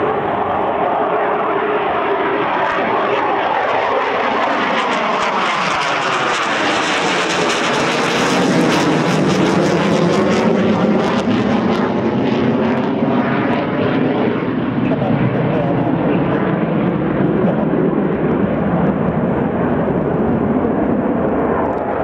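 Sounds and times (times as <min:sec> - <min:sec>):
jet engines roaring overhead: 0:00.0 - 0:22.0.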